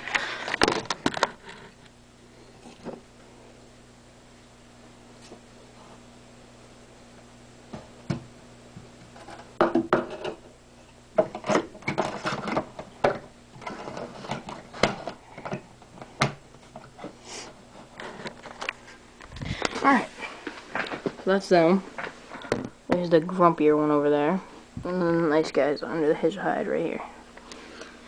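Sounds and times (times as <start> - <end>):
faint electrical hum: 0.0 - 28.0
hard objects knocking and clattering: 9.3 - 10.4, 11.2 - 16.9.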